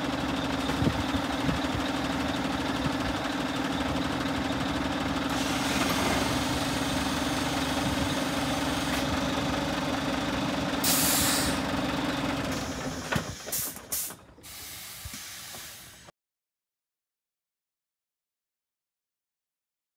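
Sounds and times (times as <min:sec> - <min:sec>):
diesel truck engine idling: 0:00.0 - 0:16.1
compressed air hiss: 0:10.8 - 0:11.6, 0:12.6 - 0:16.1.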